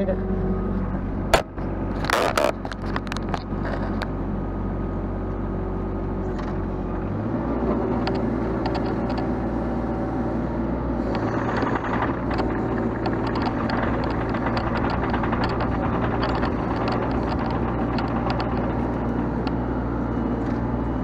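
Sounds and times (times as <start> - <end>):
excavator engine under load: 0.0 - 21.0.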